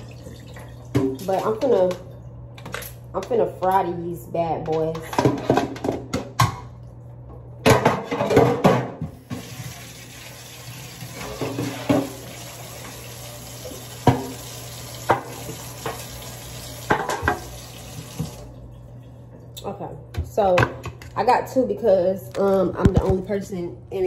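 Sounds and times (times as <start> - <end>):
tap water running: 0.0 - 2.1, 9.0 - 18.9
metal pan clattering in sink: 7.7 - 9.0.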